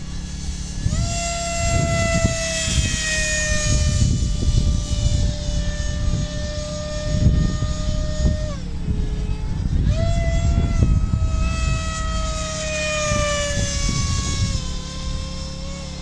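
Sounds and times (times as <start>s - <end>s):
model airplane motor whining: 0.0s - 16.0s
wind on microphone: 0.0s - 16.0s.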